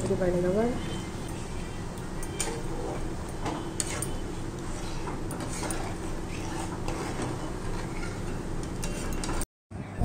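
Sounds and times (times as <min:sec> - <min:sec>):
metal spatula scraping frying pan: 0:02.3 - 0:09.4.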